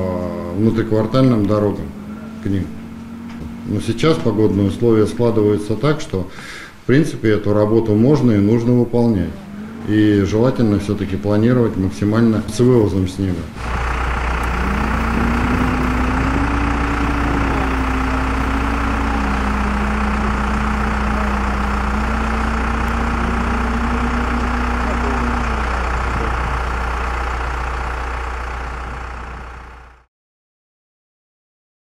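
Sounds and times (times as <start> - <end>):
diesel engine droning under load: 0.0 - 30.1.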